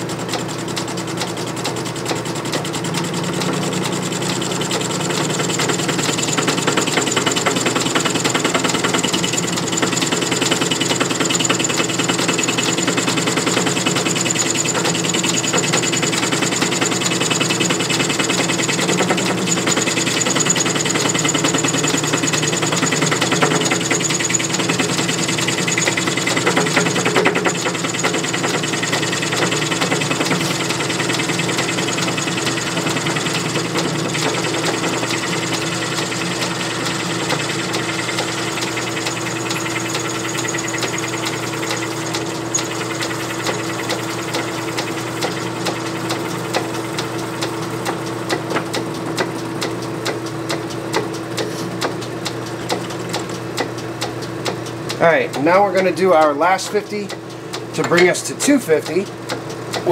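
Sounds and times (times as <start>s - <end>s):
metal lathe chattering: 0.0s - 59.9s.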